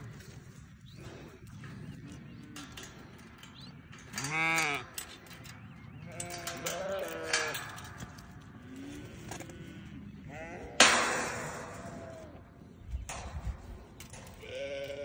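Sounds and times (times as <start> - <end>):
goat bleating: 14.3 - 15.0.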